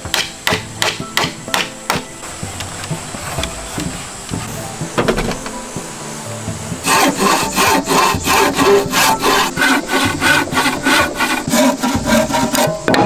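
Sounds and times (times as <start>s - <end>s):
hand saw cutting wood: 6.8s - 13.0s.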